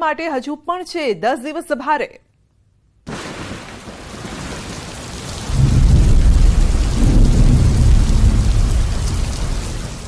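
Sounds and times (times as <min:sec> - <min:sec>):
heavy rain hissing: 0:03.1 - 0:10.0
thunder rumbling: 0:03.1 - 0:10.0.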